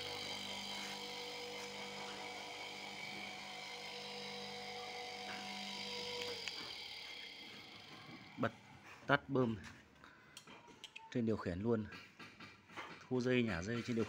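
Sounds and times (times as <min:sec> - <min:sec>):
sprayer pump motor humming: 0:00.0 - 0:08.6.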